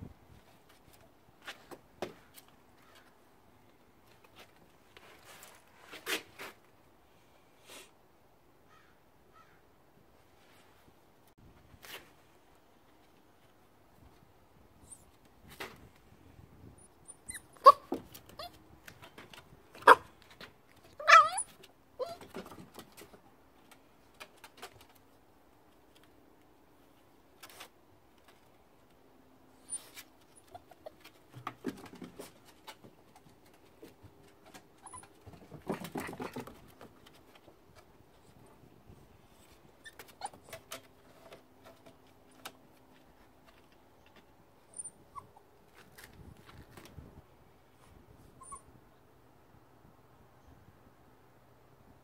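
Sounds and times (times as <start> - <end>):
puppy whimpers: 17.0 - 18.6, 21.0 - 22.3, 48.4 - 48.7.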